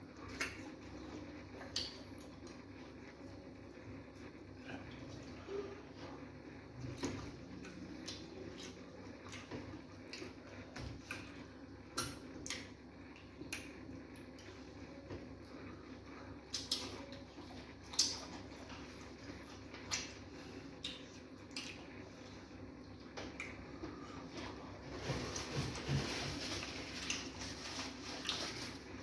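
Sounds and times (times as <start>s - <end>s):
chewing: 6.8s - 11.4s, 16.5s - 22.4s, 23.3s - 28.8s.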